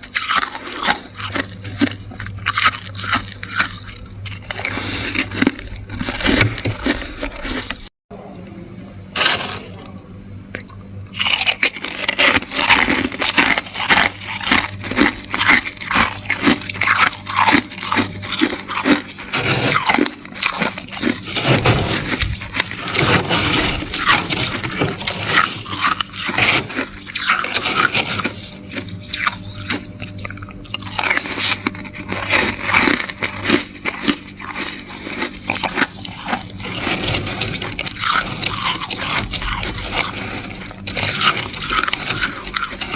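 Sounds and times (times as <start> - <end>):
chewing: 0.0 - 7.9, 10.5 - 42.9
frost crunching and crackling: 0.0 - 7.9, 9.1 - 42.9
metal spoon digging into frost: 18.8 - 28.5.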